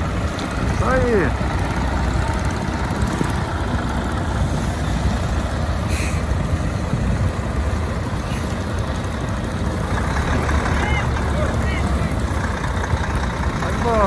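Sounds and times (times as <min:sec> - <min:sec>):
truck diesel engine rumbling: 0:00.0 - 0:14.0
air brake hiss: 0:05.9 - 0:06.3.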